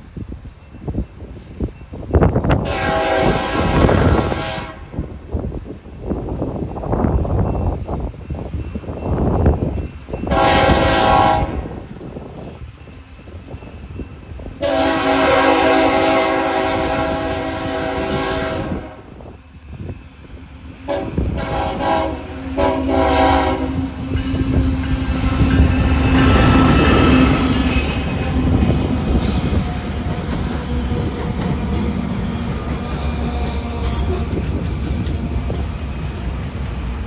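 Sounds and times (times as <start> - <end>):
locomotive air horn blasts: 2.6 - 5.0, 10.3 - 11.8, 14.6 - 19.1, 20.8 - 24.6
locomotive engine and wheel rumble: 4.8 - 37.0.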